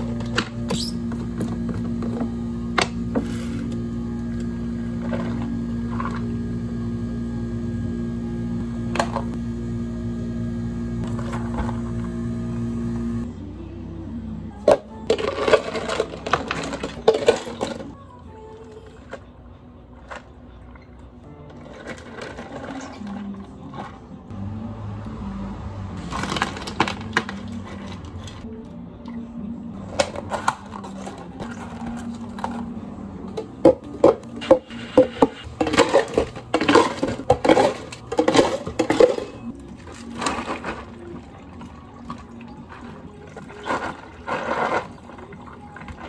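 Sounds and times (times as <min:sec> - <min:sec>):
ice cubes clattering into plastic cups: 0:15.1 - 0:18.0, 0:21.6 - 0:24.0, 0:26.0 - 0:28.2, 0:35.5 - 0:46.0.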